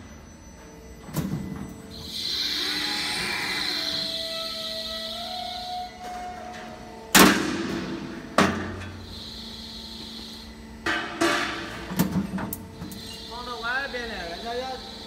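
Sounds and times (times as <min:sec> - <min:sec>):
machine hum: 0:00.0 - 0:15.0
punch press metallic bang: 0:07.1 - 0:08.8.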